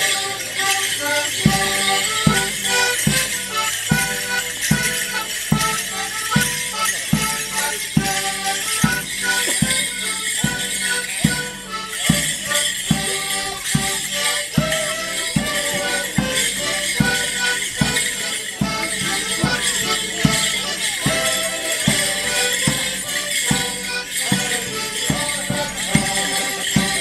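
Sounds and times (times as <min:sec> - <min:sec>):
folk dance band playing: 0:00.0 - 0:27.0
leg bells jingling: 0:00.0 - 0:27.0
drum beat: 0:01.4 - 0:27.0.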